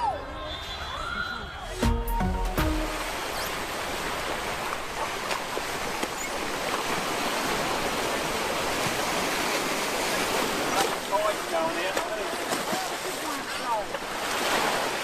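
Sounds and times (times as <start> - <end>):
musical sting with low thump: 1.8 - 3.2
small waves breaking on sand: 2.8 - 15.0.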